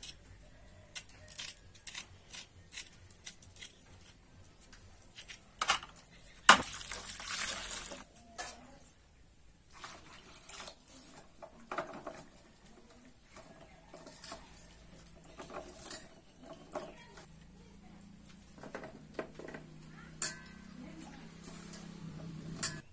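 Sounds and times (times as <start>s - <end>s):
water splashing: 6.5s - 8.0s.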